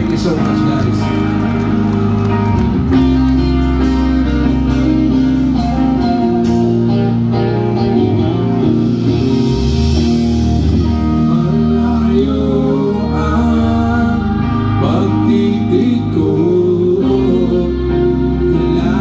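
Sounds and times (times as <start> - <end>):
electric guitars sustained chords: 0.0 - 19.0
live rock band playing: 0.0 - 19.0
person singing: 10.8 - 19.0.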